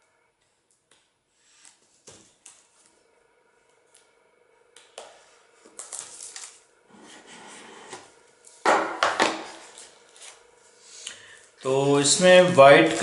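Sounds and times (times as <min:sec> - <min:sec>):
cardboard box scrapes and rustles: 0:06.9 - 0:08.0.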